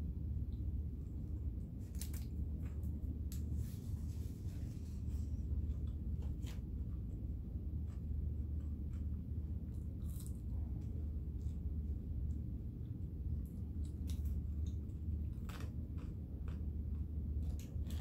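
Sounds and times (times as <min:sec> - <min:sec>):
steady low hum: 0:00.0 - 0:18.0
soft chewing: 0:01.4 - 0:18.0.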